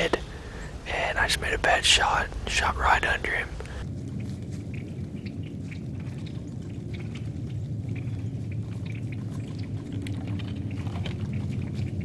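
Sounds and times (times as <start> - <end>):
steady low rumble: 0.0 - 12.0
rustling in dry leaves: 3.8 - 12.0.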